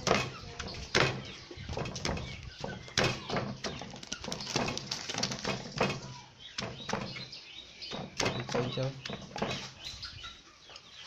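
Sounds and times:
wooden pestle pounding in mortar: 0.0 - 0.3.

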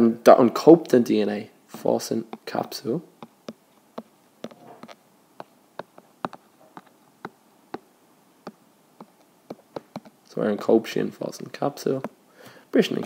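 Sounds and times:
stylus tapping on glass screen: 1.8 - 10.7.

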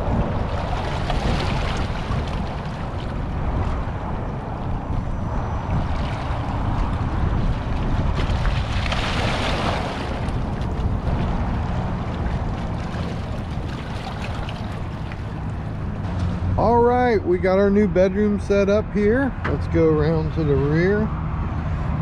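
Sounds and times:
wave splashing over rocks: 0.0 - 4.8, 5.7 - 16.2
wind on microphone: 0.0 - 22.0
small waves washing against rocks: 0.3 - 4.0, 7.2 - 15.5.

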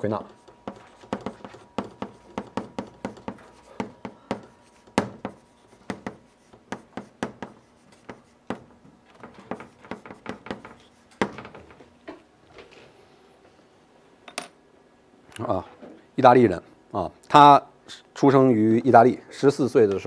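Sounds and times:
chalk tapping and scratching: 0.0 - 11.3.

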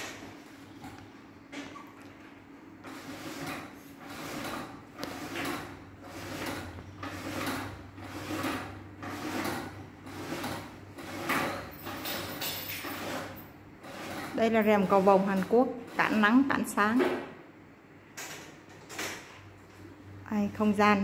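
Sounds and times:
roller blind swishing: 2.8 - 17.2.

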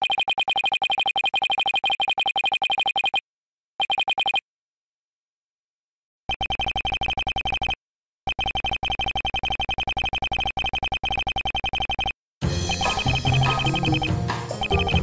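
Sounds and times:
rapid short electronic beeps: 0.0 - 3.2, 3.8 - 4.4, 6.3 - 15.0
music with drums: 12.4 - 15.0.

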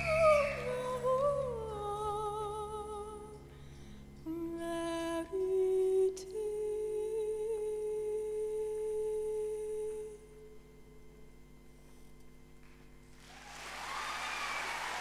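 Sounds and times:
woman singing with vibrato: 0.0 - 3.4, 4.3 - 10.5.

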